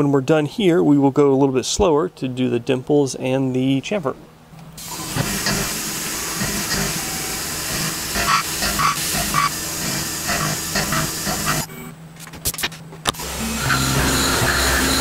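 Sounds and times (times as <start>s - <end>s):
coolant mist spraying: 4.8s - 11.7s
milling machine cutting steel: 4.8s - 11.7s, 13.2s - 15.0s.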